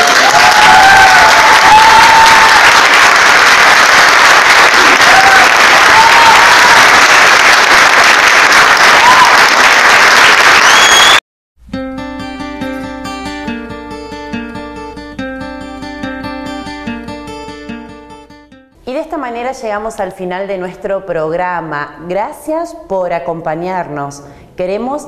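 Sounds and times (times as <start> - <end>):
crowd applauding: 0.0 - 11.2
whistles from crowd: 10.4 - 11.2
strummed acoustic guitar music: 11.6 - 18.7.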